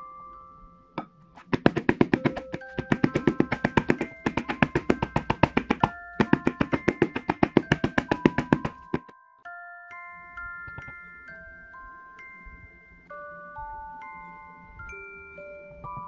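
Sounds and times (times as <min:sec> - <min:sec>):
light music with mallet melody: 0:00.0 - 0:16.0
plastic tray knocking on stone: 0:01.6 - 0:09.1.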